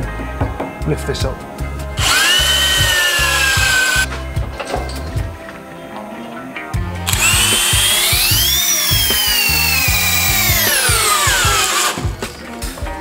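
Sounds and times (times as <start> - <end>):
background music with bass beat: 0.0 - 13.0
cordless drill motor whine: 2.0 - 4.1, 7.1 - 12.1.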